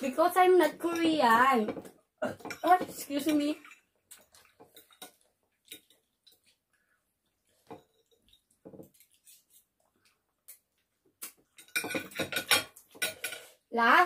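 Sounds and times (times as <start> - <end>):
chewing noodles: 3.6 - 11.6
cutlery clicking on plate: 11.2 - 13.5.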